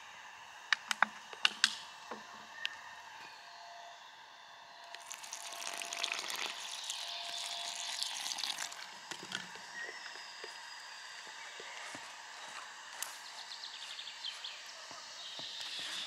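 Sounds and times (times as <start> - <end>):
water pouring onto flour: 5.0 - 9.0.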